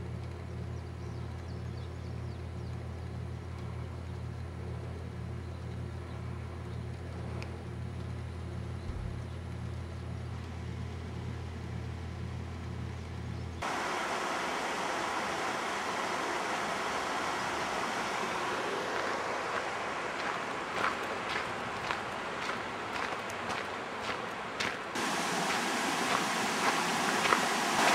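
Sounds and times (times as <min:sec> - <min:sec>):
creek water flowing: 0:13.6 - 0:27.9.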